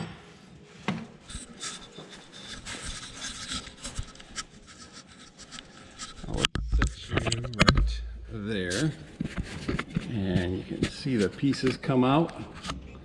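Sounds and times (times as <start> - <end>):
rubbing and light scraping: 1.2 - 12.9.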